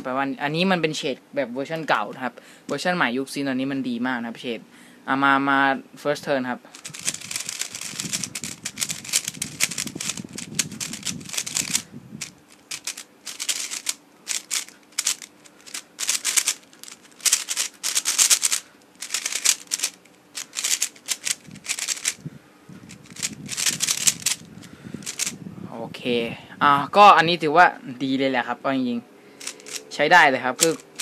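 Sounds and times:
puzzle cube plastic clicking: 6.8s - 22.2s, 22.9s - 25.4s, 29.4s - 29.9s, 30.6s - 31.0s.

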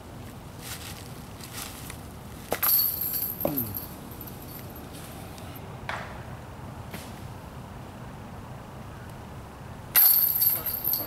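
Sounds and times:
metal chains jingling: 2.6s - 5.0s, 10.0s - 11.0s.

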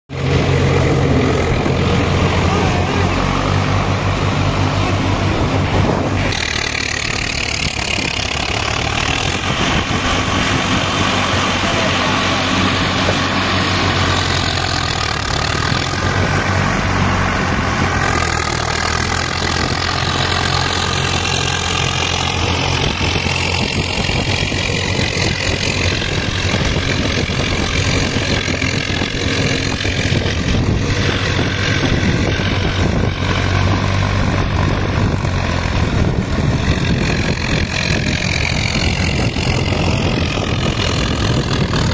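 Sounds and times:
tractor diesel engine under load: 0.0s - 41.9s.

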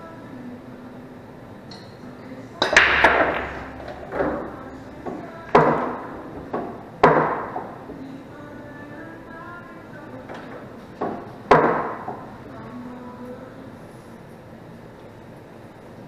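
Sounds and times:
cue ball cracking into rack: 2.6s - 8.0s, 10.3s - 12.3s
billiard balls clacking: 2.6s - 8.1s, 10.2s - 12.5s.

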